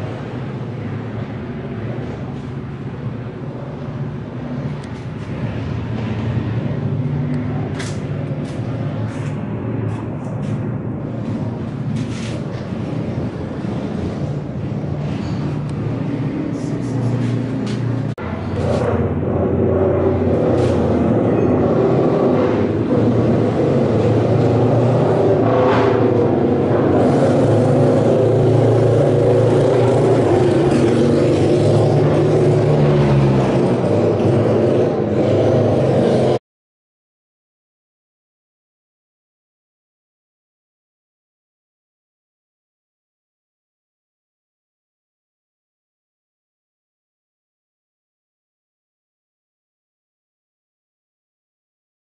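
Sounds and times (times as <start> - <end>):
motorcycle engine running: 22.2 - 36.0.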